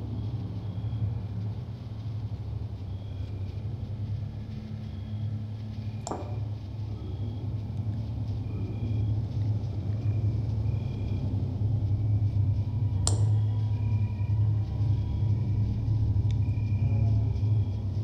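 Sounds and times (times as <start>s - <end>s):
ominous low drone: 0.0s - 18.0s.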